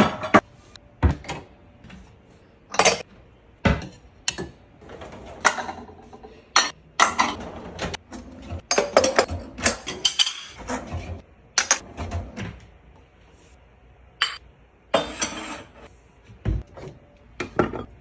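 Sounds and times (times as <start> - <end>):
glass and ceramic dishes clinking: 14.2 - 14.4.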